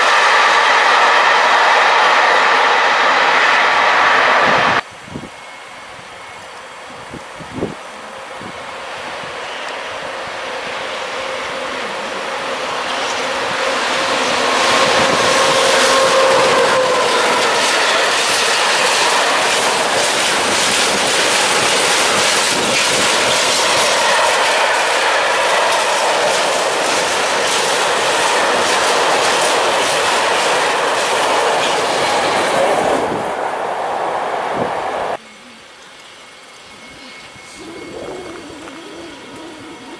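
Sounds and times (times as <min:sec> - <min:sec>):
train wheels rumbling on rail: 0:00.0 - 0:05.0, 0:06.0 - 0:35.2
locomotive held tone: 0:05.3 - 0:29.6, 0:34.6 - 0:39.9
wheels clicking over rail joints: 0:12.6 - 0:32.5.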